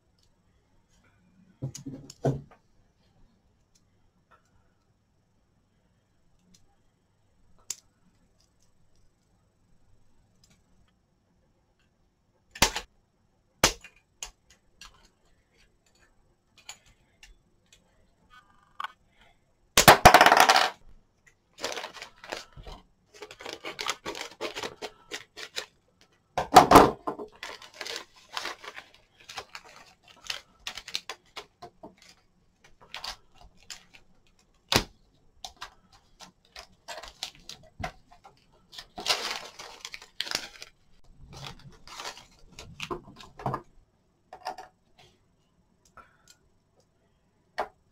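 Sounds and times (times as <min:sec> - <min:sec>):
plastic bags crinkling: 0:21.6 - 0:25.8, 0:27.2 - 0:34.5, 0:35.5 - 0:43.4.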